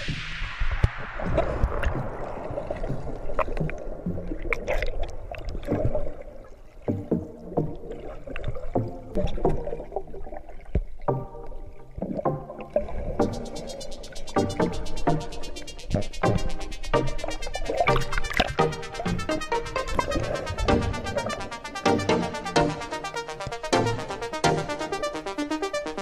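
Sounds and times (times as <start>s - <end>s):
muffled underwater splashing: 0.0s - 26.0s
knocks and gurgles: 0.8s - 14.7s
music: 1.8s - 5.0s, 6.8s - 10.0s, 11.1s - 26.0s.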